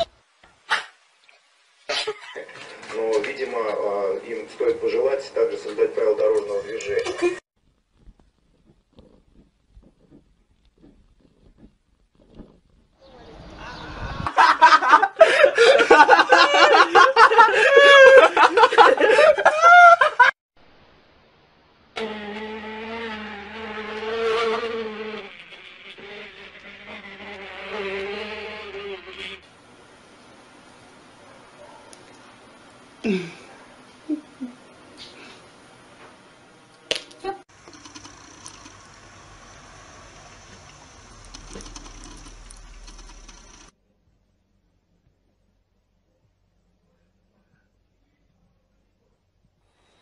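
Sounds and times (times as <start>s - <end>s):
kitten purring: 7.9s - 13.0s.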